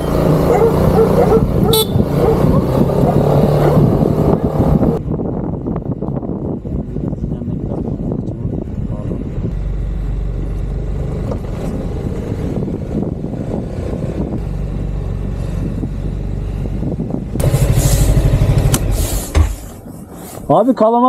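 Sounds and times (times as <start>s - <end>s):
scooter engine running: 0.0s - 4.5s, 16.9s - 19.8s.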